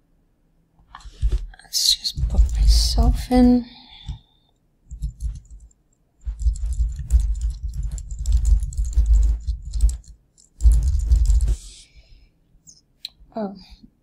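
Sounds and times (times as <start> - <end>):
fast typing on keyboard: 2.1 - 3.2, 4.9 - 11.7.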